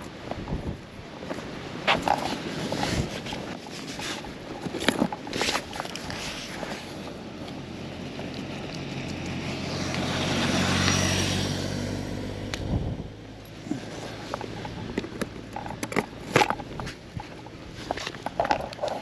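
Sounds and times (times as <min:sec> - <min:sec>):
sharp clicks and scrapes: 0:01.8 - 0:07.1, 0:13.7 - 0:19.0
vehicle passing close by: 0:07.6 - 0:14.9.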